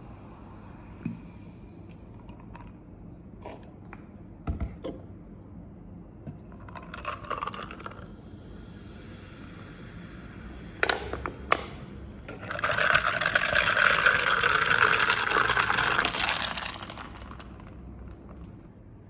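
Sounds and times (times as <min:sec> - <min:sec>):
drink pouring over ice: 0:06.6 - 0:08.1, 0:12.3 - 0:18.4.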